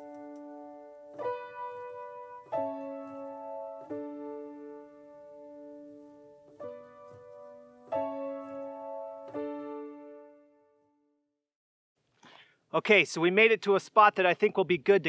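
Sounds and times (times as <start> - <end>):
slow piano chords: 0.0 - 10.9.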